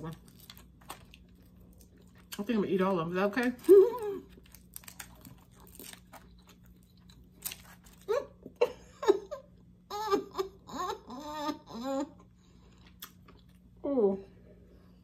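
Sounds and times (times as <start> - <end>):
woman humming and giggling: 8.1 - 12.2.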